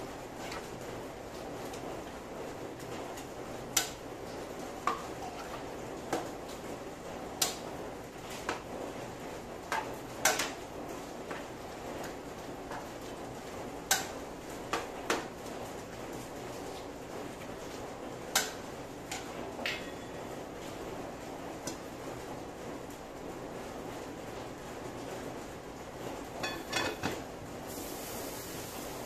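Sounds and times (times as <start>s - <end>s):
metal spatula clanking on wok: 26.4s - 27.2s
steady hiss: 27.6s - 29.0s.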